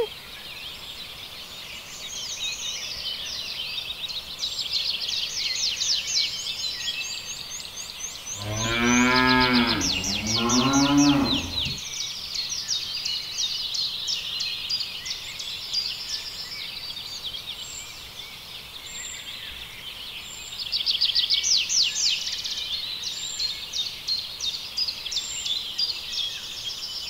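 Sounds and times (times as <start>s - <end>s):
cow mooing: 8.4s - 11.8s.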